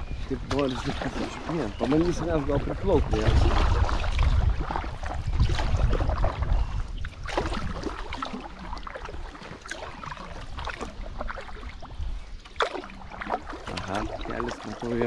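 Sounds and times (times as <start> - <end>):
low rumble on microphone: 0.0 - 15.0
paddle splashing in water: 0.1 - 15.0.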